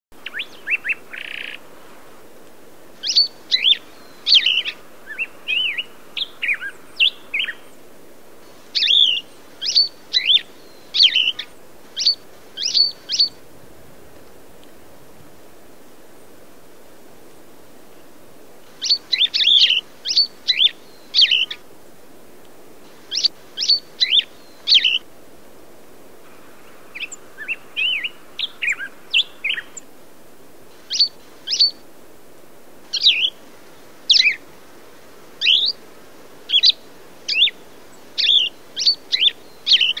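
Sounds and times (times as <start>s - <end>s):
soft jumbled bird twitter: 0.2s - 1.6s, 3.0s - 7.9s, 8.5s - 13.4s, 18.7s - 21.6s, 22.9s - 25.0s, 26.3s - 29.9s, 30.8s - 31.8s, 32.9s - 33.4s, 34.1s - 34.5s, 35.4s - 35.8s, 36.5s - 40.0s
songbird whistled notes: 3.0s - 7.6s, 8.8s - 13.4s, 18.8s - 21.6s, 23.1s - 25.0s, 30.9s - 31.8s, 32.9s - 33.4s, 35.4s - 35.8s, 38.2s - 40.0s.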